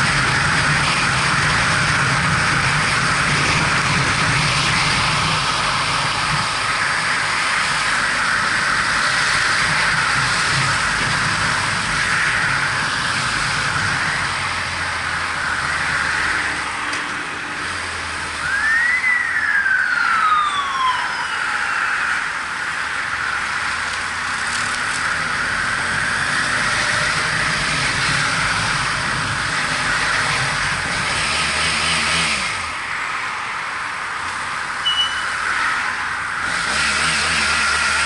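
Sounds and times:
wind and road rush: 0.0 - 38.0
high whine rising and sliding down: 10.8 - 30.6.

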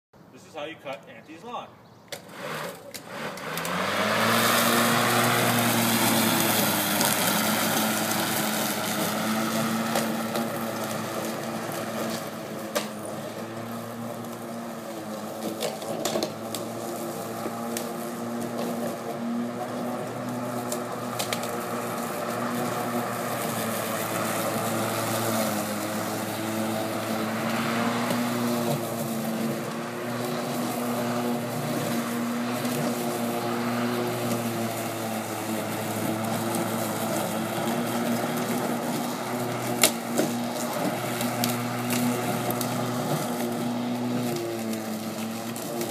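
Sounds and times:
electric lawn mower cutting grass: 2.1 - 45.9.

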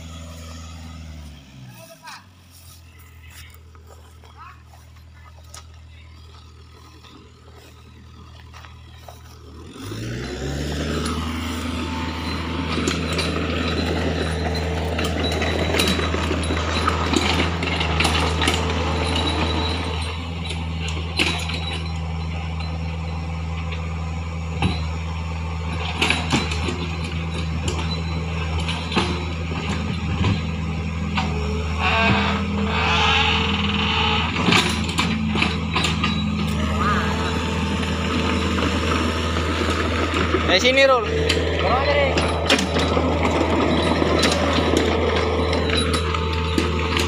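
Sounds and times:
diesel engine idling and revving: 0.0 - 47.0
clanks and knocks: 10.9 - 22.8, 24.5 - 25.0, 25.7 - 47.0.

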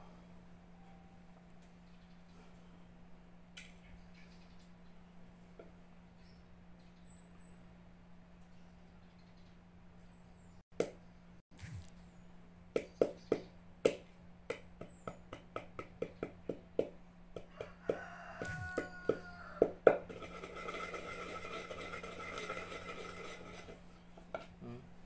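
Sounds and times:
wooden pestle pounding in mortar: 12.8 - 21.2
pestle grinding scrape: 17.9 - 24.6.

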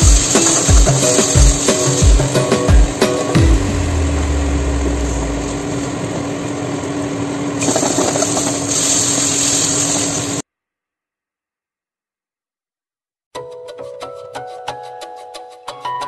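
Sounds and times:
kitchen hum: 0.0 - 10.4.

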